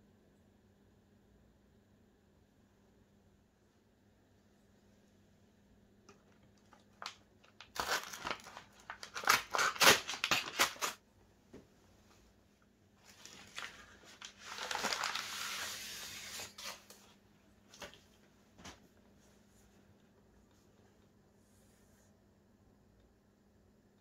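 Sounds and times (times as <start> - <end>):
paper mailer crinkling and tearing: 6.5 - 11.0, 13.0 - 17.0
utility knife cutting paper: 14.7 - 16.9.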